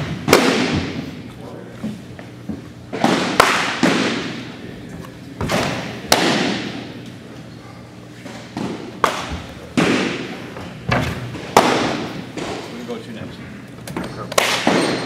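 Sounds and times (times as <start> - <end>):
baseballs smacking into mitts: 0.0 - 1.3, 2.9 - 4.6, 5.4 - 7.1, 8.2 - 12.7, 13.9 - 15.0.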